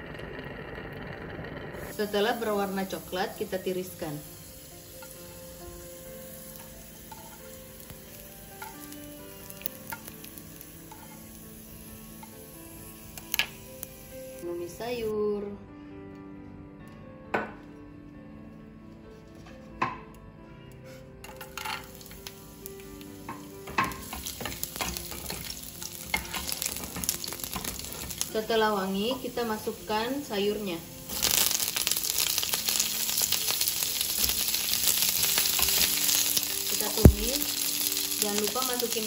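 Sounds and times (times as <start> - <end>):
garlic sizzling in oil: 1.8 - 15.1, 20.9 - 39.0
metal tongs clicking on pan: 8.6 - 9.0, 23.3 - 28.3.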